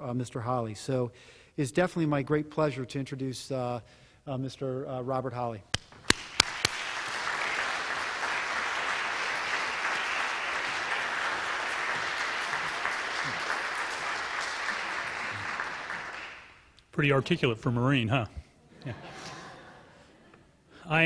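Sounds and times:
audience applauding: 0:06.0 - 0:16.7.

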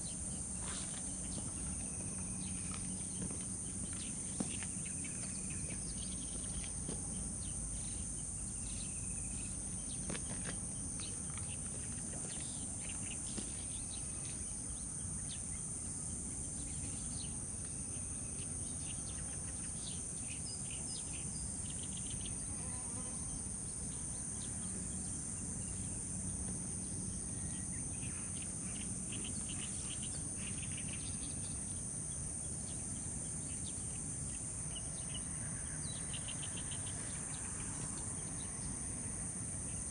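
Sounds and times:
insects chorus: 0:00.0 - 0:39.9.

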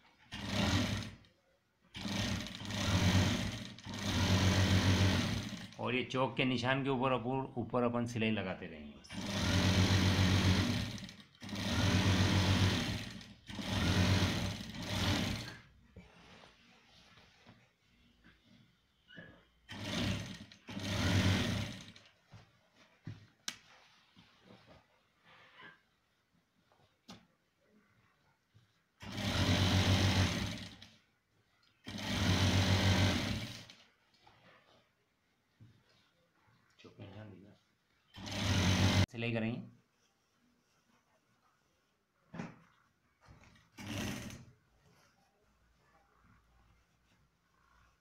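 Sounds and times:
sewing machine stitching: 0:00.0 - 0:01.3, 0:01.9 - 0:05.8, 0:09.1 - 0:15.8, 0:19.7 - 0:22.2, 0:29.0 - 0:31.0, 0:31.8 - 0:33.9, 0:38.1 - 0:39.1, 0:43.3 - 0:44.6.

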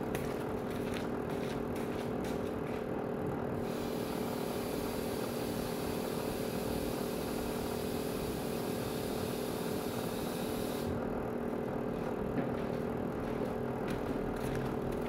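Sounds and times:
garment steamer humming and hissing: 0:02.8 - 0:11.8.

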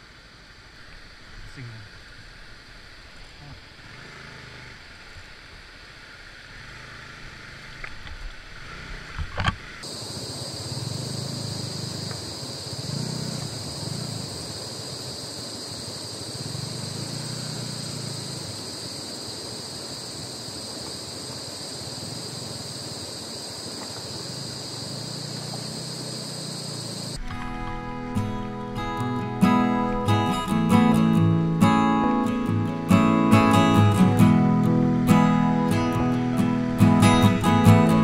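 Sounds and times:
insect drone: 0:00.0 - 0:38.0
motorcycle engine at low revs: 0:03.7 - 0:21.3, 0:22.0 - 0:27.8.

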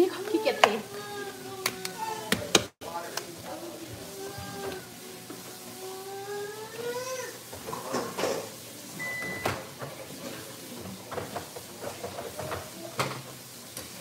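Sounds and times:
short beep: 0:09.0 - 0:09.5.

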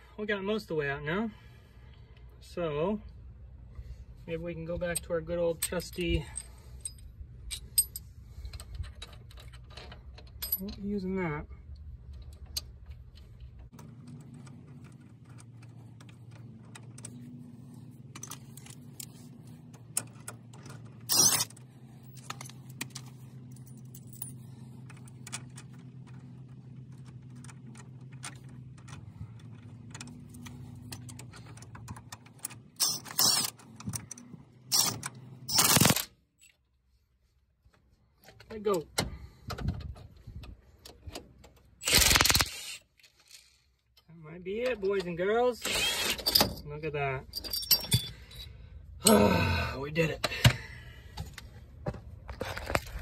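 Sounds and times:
metal tools clicking on threaded rod: 0:20.0 - 0:23.0, 0:29.9 - 0:36.5.

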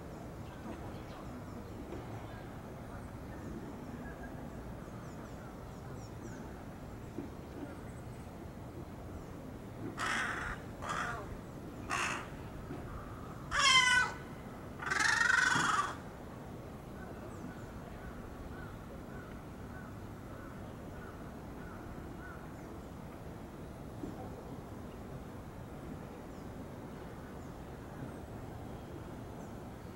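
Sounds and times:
crow cawing: 0:10.0 - 0:11.3, 0:11.9 - 0:12.4, 0:13.5 - 0:16.0.

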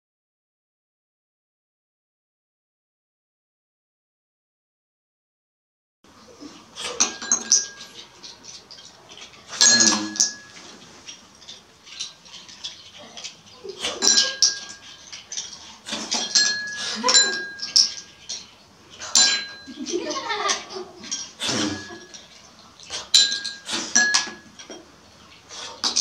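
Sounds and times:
spoons clinking on ceramic bowls: 0:06.8 - 0:24.9.

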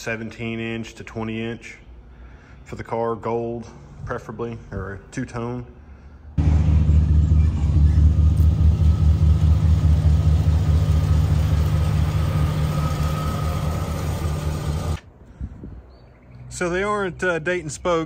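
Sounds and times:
car engine idling: 0:06.4 - 0:15.0.

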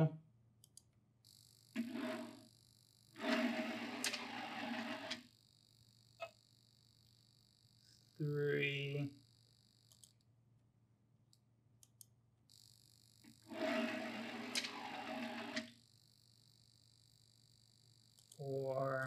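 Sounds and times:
cart rolling on metal track: 0:03.2 - 0:05.2, 0:13.5 - 0:15.7
faint ticks: 0:09.2 - 0:10.3, 0:11.3 - 0:12.7, 0:18.0 - 0:18.4.

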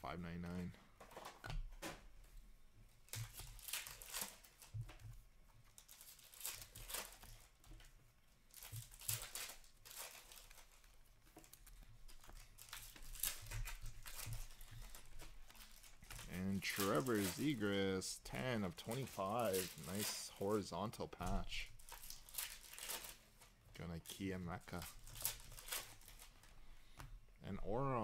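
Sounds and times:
trading cards swishing and rustling: 0:08.5 - 0:28.0.

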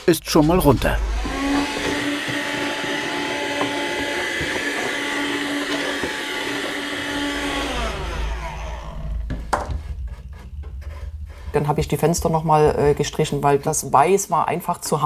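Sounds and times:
small electric motor whining: 0:00.6 - 0:11.3.

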